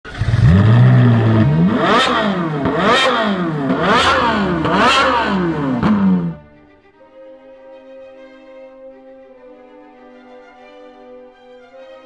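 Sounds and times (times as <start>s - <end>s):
exhaust crack: 0.0s - 6.5s
car engine starting and revving: 0.1s - 6.6s.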